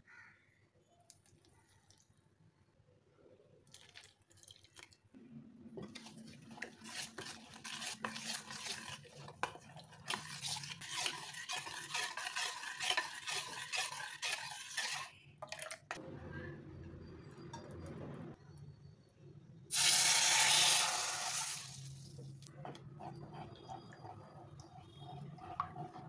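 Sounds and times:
spoon scraping metal bowl: 0:05.8 - 0:16.0, 0:22.6 - 0:26.0.

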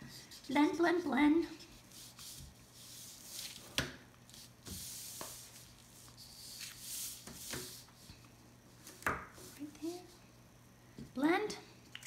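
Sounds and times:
tracing paper rustling: 0:01.6 - 0:09.7.

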